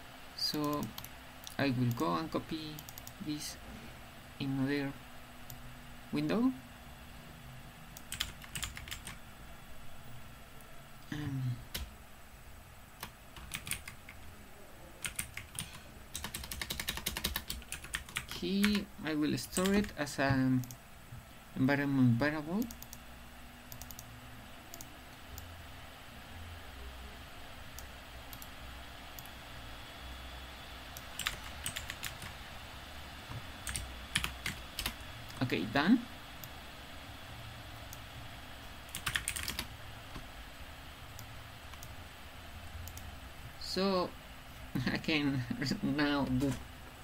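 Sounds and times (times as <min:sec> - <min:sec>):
faint background hum: 0:00.0 - 0:47.0
keyboard typing: 0:00.5 - 0:03.5, 0:07.9 - 0:09.2, 0:11.1 - 0:11.9, 0:13.0 - 0:14.2, 0:15.0 - 0:20.8, 0:22.6 - 0:23.0, 0:23.7 - 0:24.1, 0:30.9 - 0:32.4, 0:33.3 - 0:35.5, 0:38.8 - 0:40.3.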